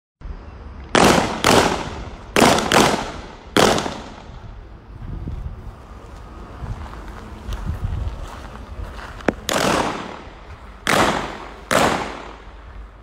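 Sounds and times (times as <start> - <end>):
gunshots with echo: 1.0 - 4.3, 9.4 - 12.6.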